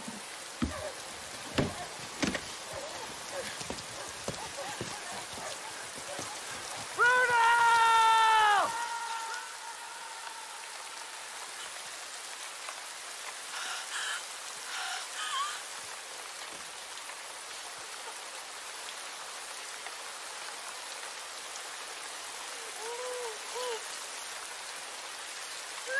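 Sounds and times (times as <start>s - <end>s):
steady rain falling: 0.0s - 25.9s
faint cries: 0.6s - 10.9s
man shouting: 7.0s - 10.1s.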